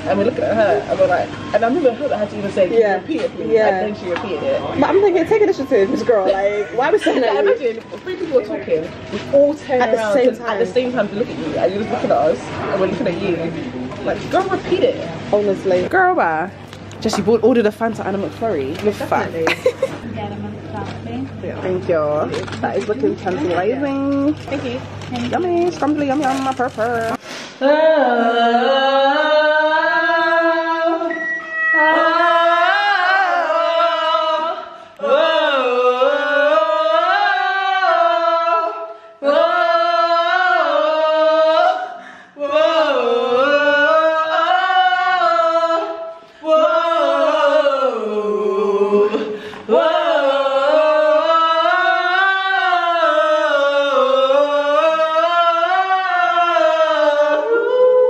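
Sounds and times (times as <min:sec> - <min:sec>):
woman singing unaccompanied: 0:00.0 - 0:19.9, 0:20.8 - 0:58.0
woman breathing: 0:42.0 - 0:42.4.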